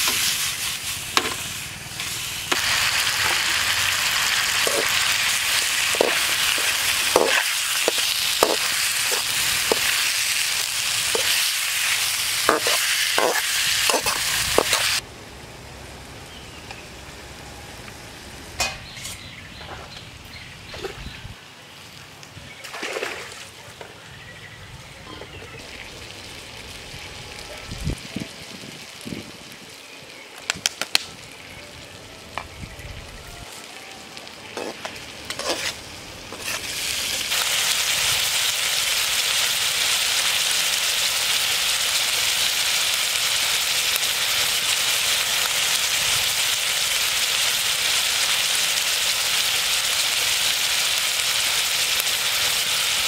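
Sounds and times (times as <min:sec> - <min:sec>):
food sizzling in a pan: 0:00.0 - 0:15.0, 0:32.5 - 0:53.0.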